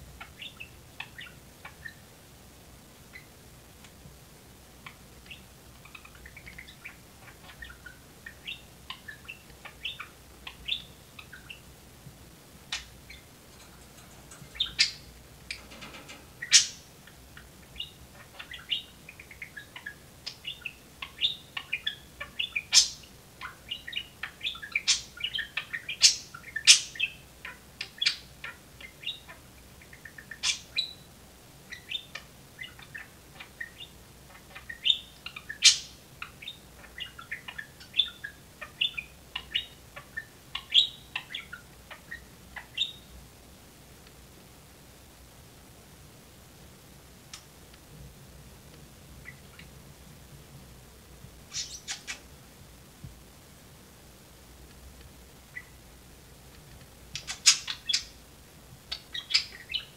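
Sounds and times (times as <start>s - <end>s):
budgerigar chirping: 5.3s - 11.7s, 12.7s - 13.3s, 14.4s - 31.1s, 31.7s - 43.1s, 51.5s - 52.2s, 57.2s - 58.2s, 58.9s - 59.9s.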